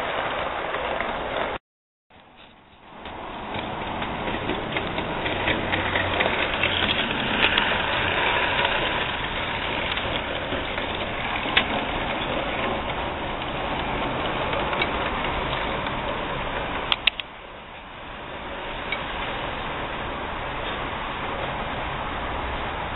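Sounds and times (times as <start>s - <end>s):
model train rumbling on track: 0.0s - 22.9s
sharp clicks: 16.9s - 17.3s.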